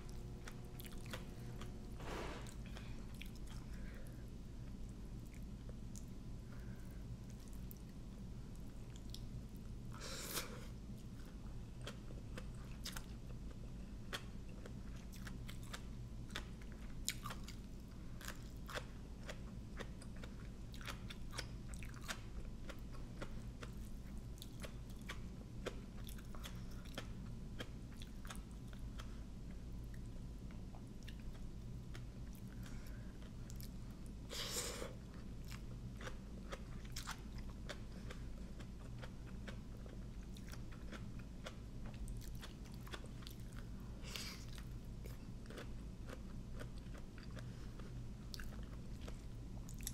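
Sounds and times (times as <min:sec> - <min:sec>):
person chewing wet crunches: 0:00.0 - 0:09.8, 0:11.0 - 0:34.2, 0:34.9 - 0:49.9
steady low hum: 0:00.0 - 0:49.9.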